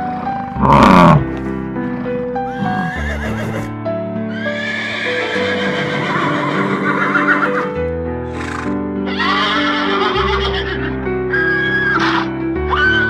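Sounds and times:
background music sustained notes: 0.0 - 13.0
horse neighing: 0.6 - 1.3, 2.5 - 3.7, 4.4 - 7.7, 8.3 - 12.3.

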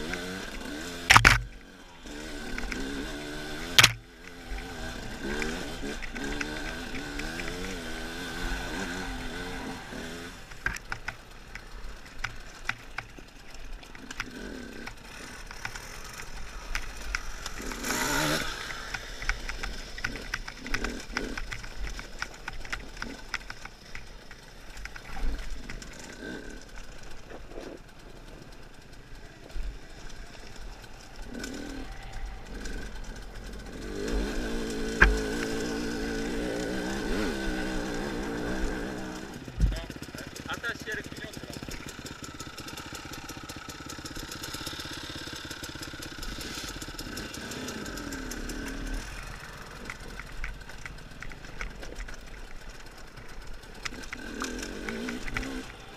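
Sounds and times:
motorcycle engine revving: 0.0 - 55.9
stones rattling and knocking: 1.1 - 1.6, 2.5 - 4.0, 33.9 - 35.6, 47.0 - 55.9.

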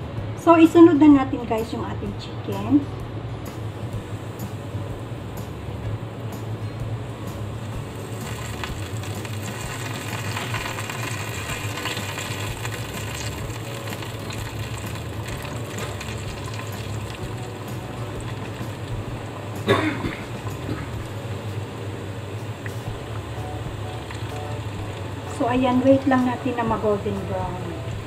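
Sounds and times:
steady low hum: 0.0 - 28.0
chicken deep-frying in oil: 7.0 - 19.6, 20.2 - 28.0.

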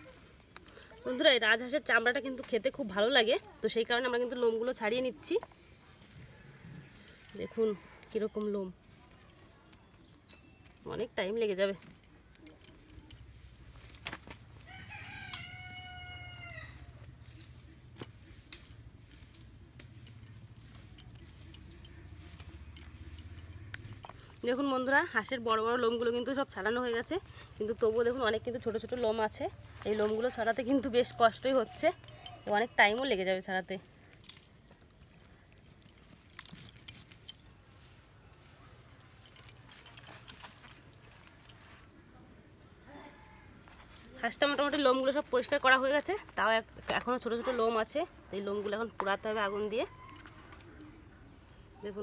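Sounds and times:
rooster crowing: 14.6 - 17.1, 49.7 - 50.8.

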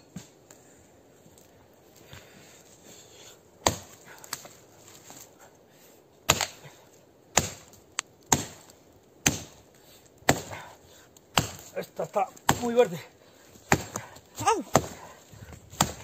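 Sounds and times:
axe chopping into wood: 3.6 - 4.5, 6.3 - 6.6, 7.3 - 9.6, 10.2 - 10.7, 11.3 - 12.9, 13.6 - 15.1, 15.7 - 16.0.

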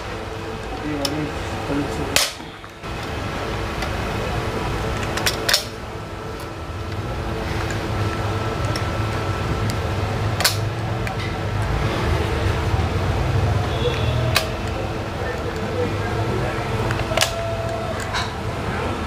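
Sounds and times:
steady mechanical hum: 0.0 - 19.0
rivet mandrels snapping: 5.0 - 5.8, 10.4 - 11.7.

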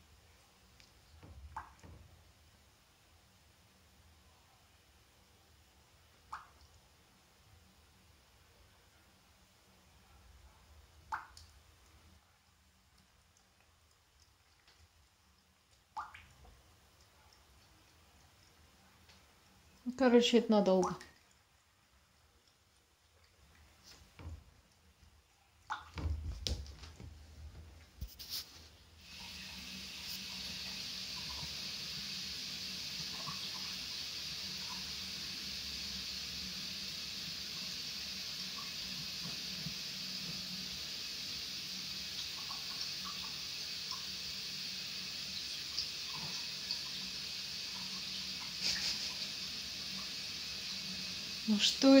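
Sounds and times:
steady hiss: 26.0 - 52.0.

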